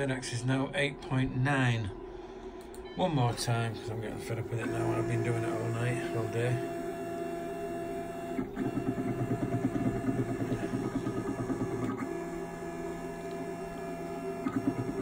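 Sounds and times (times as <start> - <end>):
stepper motor buzzing: 3.6 - 15.0.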